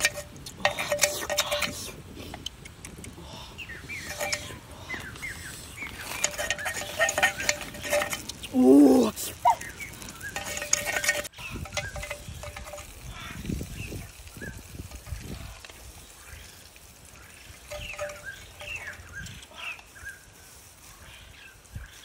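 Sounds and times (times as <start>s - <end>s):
metal spoon clinking on clay pan: 0.0s - 2.0s, 4.1s - 4.6s, 6.1s - 8.5s, 10.2s - 13.2s, 17.7s - 19.0s.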